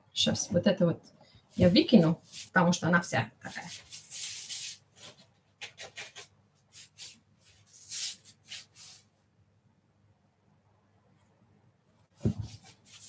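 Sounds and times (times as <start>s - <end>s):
rustles and scrapes in kitchen: 1.5s - 9.2s, 12.1s - 13.0s.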